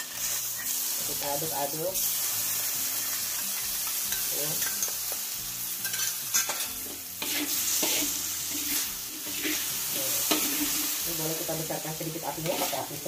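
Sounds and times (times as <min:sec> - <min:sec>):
food sizzling in wok: 0:00.0 - 0:13.0
metal spatula scraping wok: 0:02.0 - 0:13.0.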